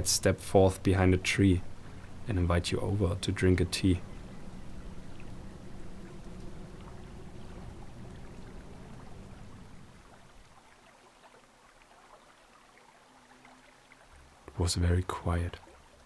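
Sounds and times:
distant stream rushing: 0:00.0 - 0:16.0
low rumble: 0:00.8 - 0:10.1.

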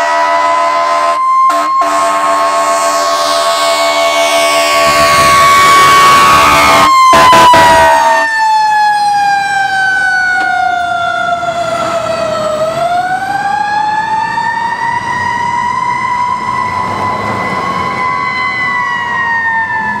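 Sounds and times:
loud horn blast: 0:00.0 - 0:08.3
fire engine siren wailing: 0:00.0 - 0:20.0.

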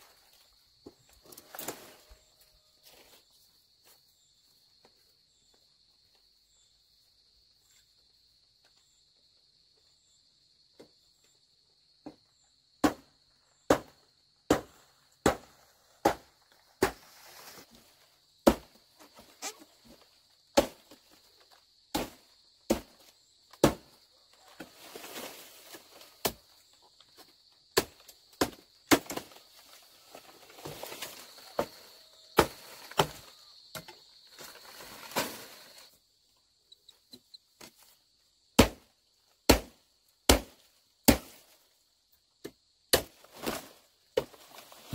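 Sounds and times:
blade chopping bamboo: 0:13.7 - 0:17.0, 0:18.4 - 0:18.8, 0:20.6 - 0:21.0, 0:21.9 - 0:23.0, 0:23.6 - 0:23.9, 0:27.8 - 0:29.4, 0:32.4 - 0:33.9, 0:38.6 - 0:38.9, 0:39.5 - 0:41.5, 0:42.9 - 0:43.6.

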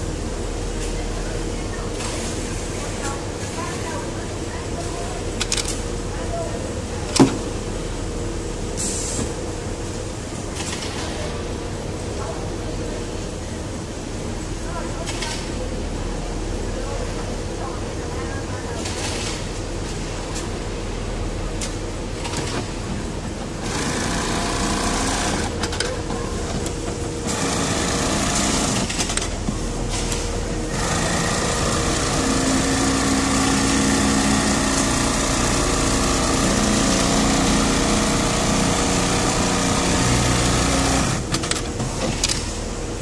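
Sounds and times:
sewing machine stitching: 0:23.6 - 0:25.7, 0:27.2 - 0:29.3, 0:30.7 - 0:41.6.

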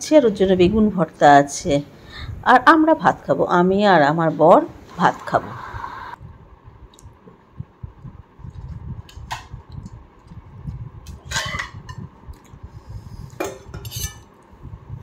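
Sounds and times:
low rumble: 0:05.4 - 0:13.4, 0:14.5 - 0:15.0
plates clinking and scraping: 0:11.3 - 0:12.0, 0:13.4 - 0:14.3.

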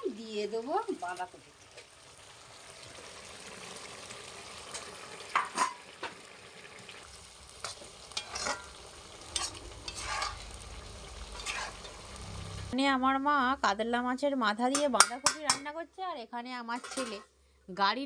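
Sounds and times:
curry simmering and sizzling: 0:00.0 - 0:12.8
metal spatula scraping pan: 0:07.6 - 0:10.6, 0:11.3 - 0:12.0, 0:16.7 - 0:17.3.

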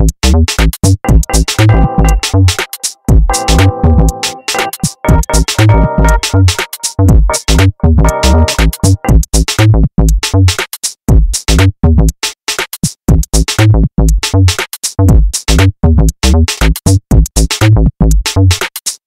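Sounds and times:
electronic music with drum machine: 0:00.0 - 0:10.6.

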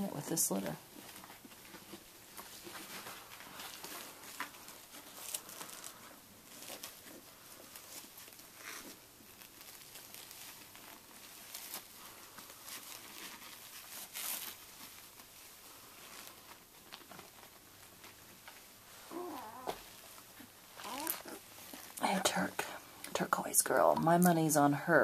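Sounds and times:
rustling and crinkling of pads: 0:00.0 - 0:25.0.

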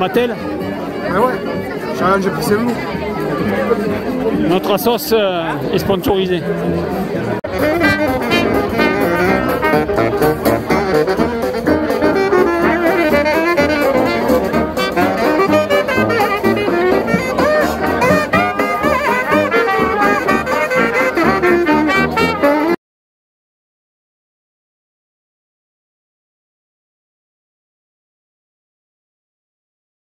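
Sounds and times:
brass band playing jazz: 0:00.0 - 0:04.8, 0:06.6 - 0:22.8.

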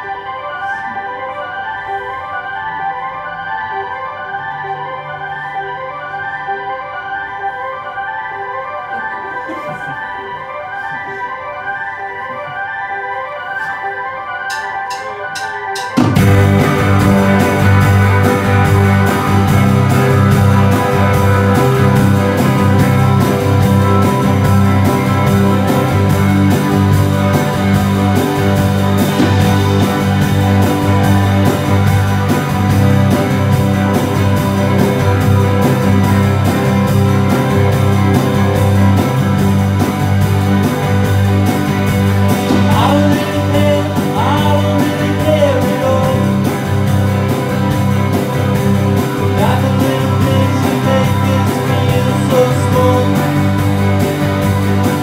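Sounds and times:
electric guitar: 0:00.0 - 0:55.0
steady drum beat: 0:14.5 - 0:55.0
electric bass low notes: 0:16.2 - 0:55.0
person singing: 0:42.4 - 0:46.8, 0:49.2 - 0:53.9.

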